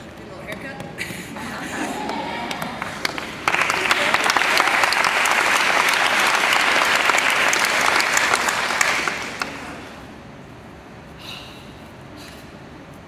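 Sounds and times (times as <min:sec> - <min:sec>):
audience applauding: 0:01.7 - 0:09.9.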